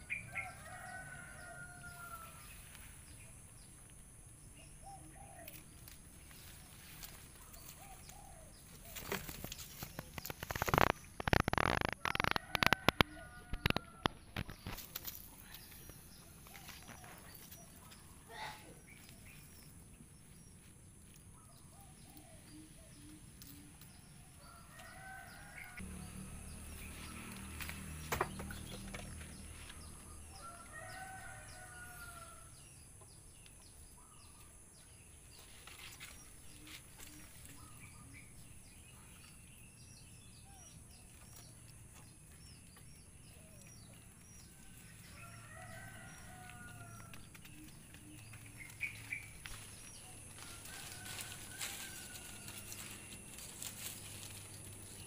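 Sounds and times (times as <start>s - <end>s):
roosters crowing faintly: 43.3s - 55.0s.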